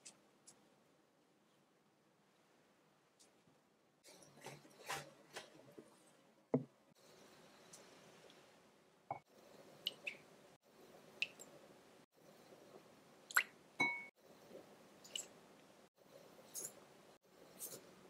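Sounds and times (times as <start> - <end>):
spoon clinking against glass bowl: 13.8 - 14.1.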